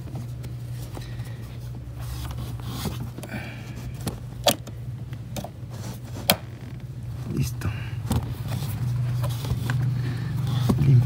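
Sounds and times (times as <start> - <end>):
soft rubbing: 0.0 - 4.0, 8.2 - 11.0.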